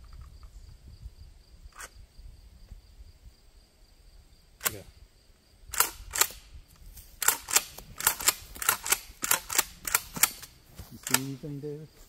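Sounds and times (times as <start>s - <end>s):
pump-action shotgun racking: 5.7s - 6.4s, 7.2s - 11.3s.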